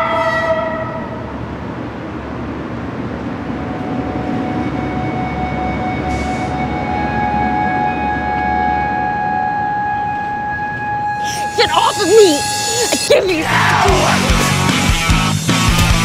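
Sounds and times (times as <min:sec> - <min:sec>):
sustained chord: 0:03.5 - 0:15.1
thin steady high tones: 0:11.0 - 0:13.6.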